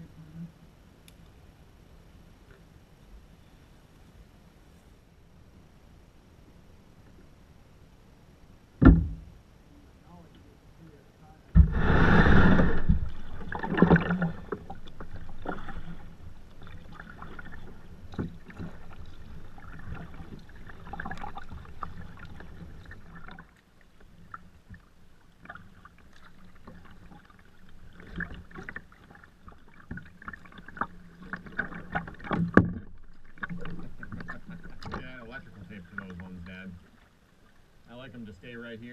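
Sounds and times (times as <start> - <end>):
sharp knocks: 8.8 - 9.3
paddles dipping and splashing: 11.6 - 38.0
water lapping at plastic hull: 11.6 - 38.2.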